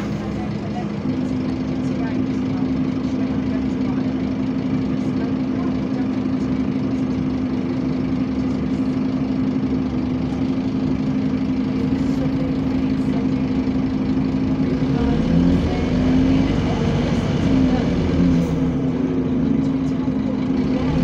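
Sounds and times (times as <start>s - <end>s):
bus engine idling: 0.0s - 21.0s.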